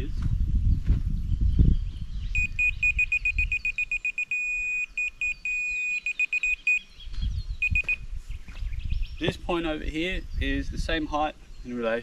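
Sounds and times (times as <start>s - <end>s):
laser receiver beeping rapidly: 2.4s - 6.8s
steady solid electronic tone: 2.4s - 6.8s.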